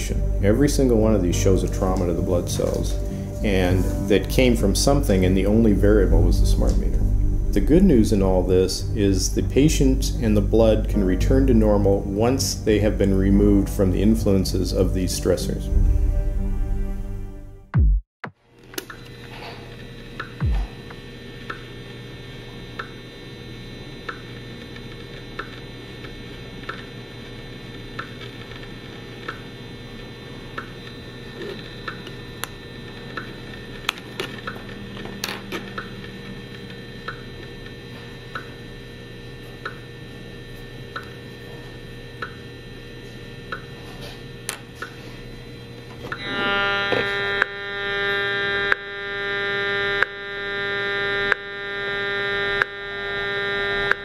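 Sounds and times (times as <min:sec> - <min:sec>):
loud multi-pitched buzz: 0:00.0 - 0:18.0, 0:18.8 - 0:28.1, 0:28.7 - 0:54.0
rf meter ticks: 0:20.2 - 0:20.7, 0:21.4 - 0:21.7, 0:22.7 - 0:23.0, 0:24.0 - 0:26.9, 0:27.8 - 0:28.3, 0:29.2 - 0:29.5, 0:30.5 - 0:31.0, 0:31.8 - 0:34.8, 0:35.5 - 0:38.7, 0:39.6 - 0:39.9, 0:40.9 - 0:41.2, 0:42.2 - 0:42.6, 0:43.5 - 0:43.8, 0:46.9 - 0:54.0.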